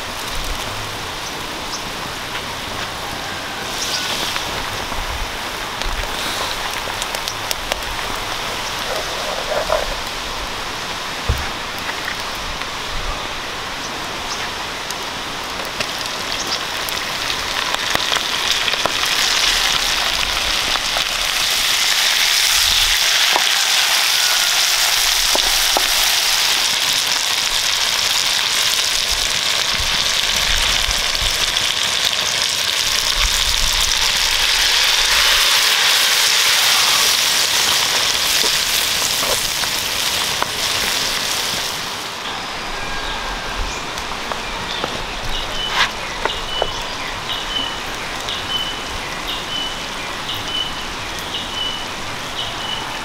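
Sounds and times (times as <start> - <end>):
shrimp sizzling in butter: 3.3 - 10.2, 15.6 - 43.5, 44.2 - 48.7.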